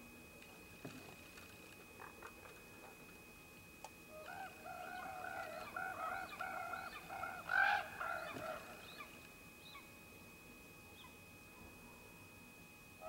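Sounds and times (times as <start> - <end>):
ravens croaking: 4.1 - 9.1.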